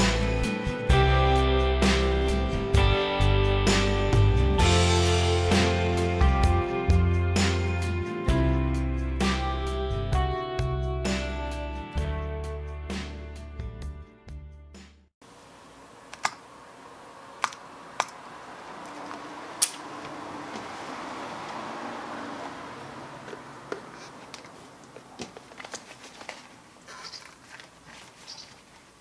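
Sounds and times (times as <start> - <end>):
background music: 0.0 - 15.0
vinyl material rustling: 23.8 - 29.0.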